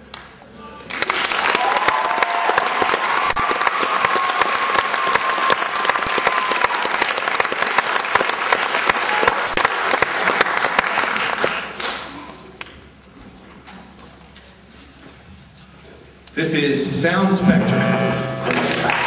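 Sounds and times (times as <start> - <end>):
audience applauding: 0.1 - 12.7, 18.4 - 19.0.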